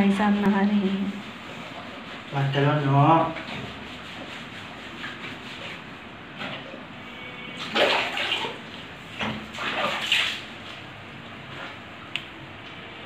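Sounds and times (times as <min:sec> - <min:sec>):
water splashing on a dog: 0:07.6 - 0:10.6.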